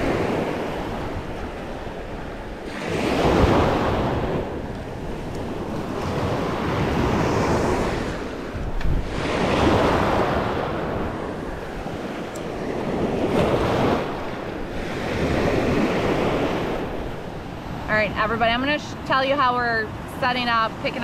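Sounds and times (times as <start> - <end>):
small surf waves washing: 0.0 - 21.0
wind buffeting microphone: 0.0 - 21.0.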